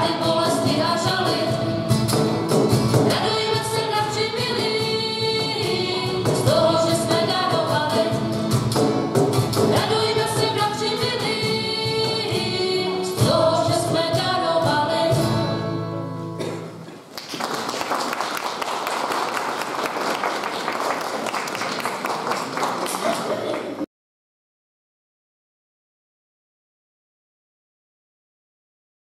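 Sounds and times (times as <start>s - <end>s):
group singing carol: 0.0s - 1.8s, 3.0s - 8.4s, 9.6s - 15.8s
acoustic guitar: 0.0s - 17.1s
audience applause: 17.0s - 23.9s.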